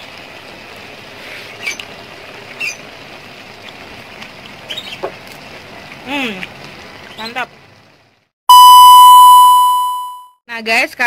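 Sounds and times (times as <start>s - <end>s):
food sizzling in a wok: 0.0s - 8.2s
short high chirps: 8.5s - 10.3s.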